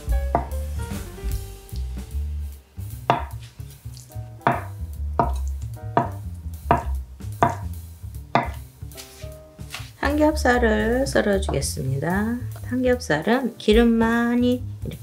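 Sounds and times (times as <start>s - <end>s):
knife chopping on wooden board: 0.3s - 0.6s, 3.1s - 3.5s, 4.4s - 5.4s, 6.0s - 7.7s, 8.4s - 8.7s.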